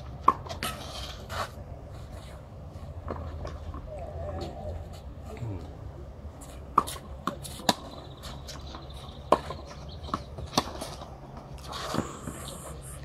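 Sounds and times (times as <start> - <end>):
tennis ball bouncing: 0.1 - 0.8, 6.7 - 12.4.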